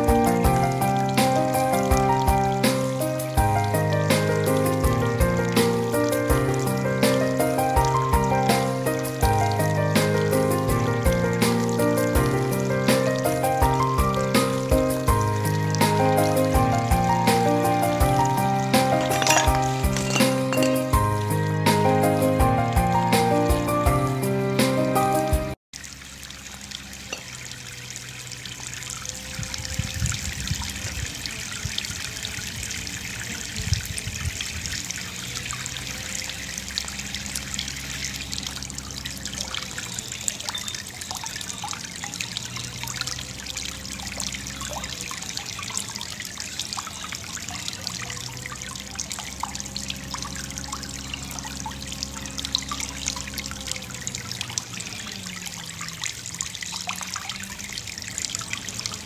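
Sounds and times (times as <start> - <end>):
water spraying from showerheads: 0.0 - 21.4.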